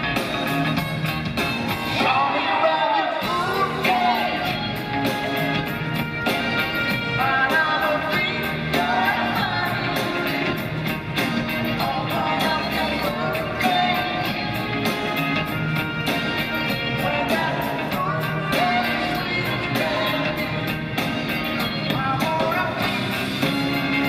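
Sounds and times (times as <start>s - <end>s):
electric guitar: 0.0s - 24.0s
man singing: 2.0s - 4.9s, 6.9s - 10.6s, 11.6s - 15.2s, 16.7s - 21.0s, 21.6s - 24.0s.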